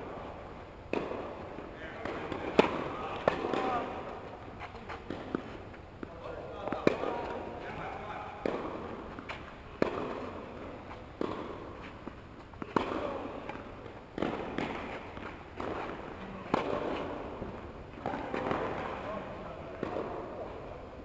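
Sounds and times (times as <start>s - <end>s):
tennis balls struck by rackets: 0.0s - 21.0s.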